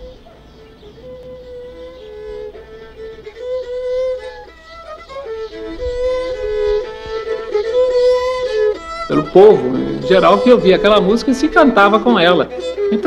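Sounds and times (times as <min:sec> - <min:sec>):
slow bowed string melody: 0:00.0 - 0:13.0.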